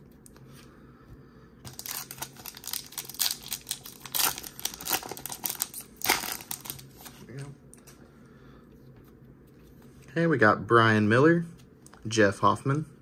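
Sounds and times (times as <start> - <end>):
card pack wrapper crinkling: 1.7 - 7.2.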